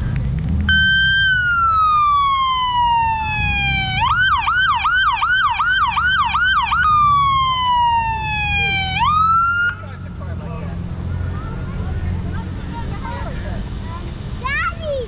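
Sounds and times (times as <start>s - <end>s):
electronic siren wailing and yelping: 0.7s - 9.8s.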